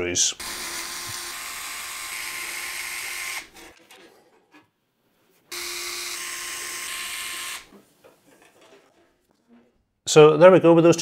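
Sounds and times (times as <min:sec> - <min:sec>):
electric screwdriver running: 0:00.4 - 0:03.5, 0:05.5 - 0:07.7.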